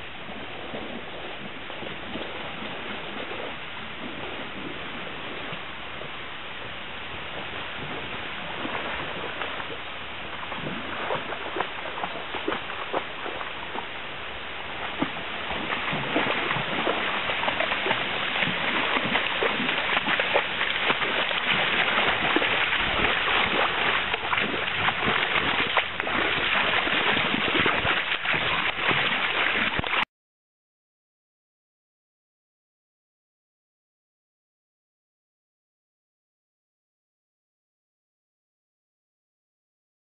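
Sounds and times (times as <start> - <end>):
stream water rushing: 0.0 - 30.0
dog splashing in water: 7.8 - 14.0, 14.7 - 30.1.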